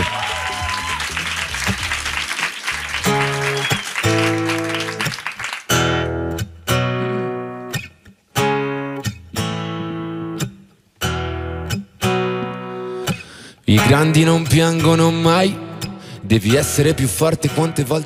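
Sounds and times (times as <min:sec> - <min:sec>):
applause: 0:00.0 - 0:06.1
acoustic guitar chords ringing: 0:05.7 - 0:18.0.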